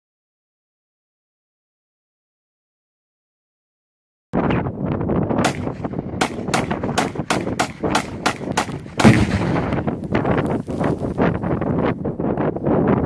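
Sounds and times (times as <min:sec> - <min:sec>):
rifle gunshots: 0:05.4 - 0:10.0
explosion boom with low rumble: 0:08.9 - 0:10.4.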